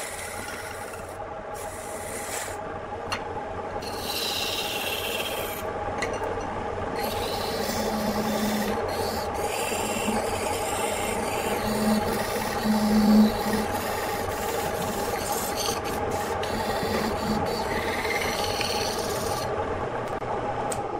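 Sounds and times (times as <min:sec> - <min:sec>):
chisel scraping spinning wood: 0:00.0 - 0:02.6, 0:03.7 - 0:05.7, 0:06.9 - 0:19.5
lathe motor hum: 0:00.0 - 0:20.9
low drone: 0:06.8 - 0:20.3.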